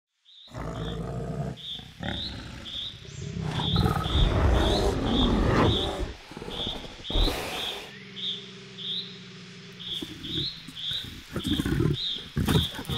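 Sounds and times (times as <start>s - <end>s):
bears growling and roaring: 0.5s - 7.9s, 10.0s - 12.9s.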